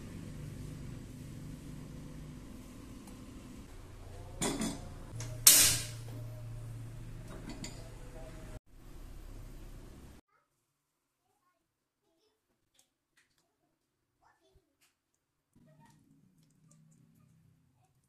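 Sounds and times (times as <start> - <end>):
low steady hum: 0.0 - 10.2
sharp metal clank ringing: 4.4 - 6.1.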